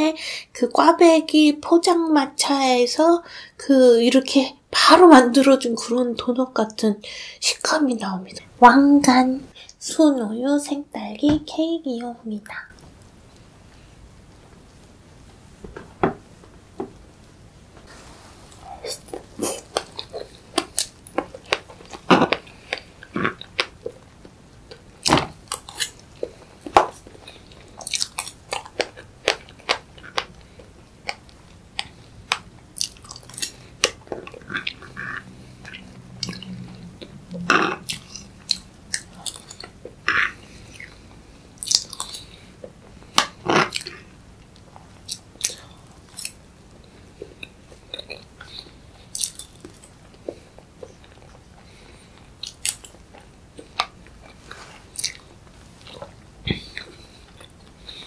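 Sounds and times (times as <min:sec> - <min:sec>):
person chewing and biting: 0:18.8 - 0:58.0
mouth clicks and smacks: 0:26.7 - 0:41.0, 0:41.6 - 0:46.4, 0:47.2 - 0:58.0.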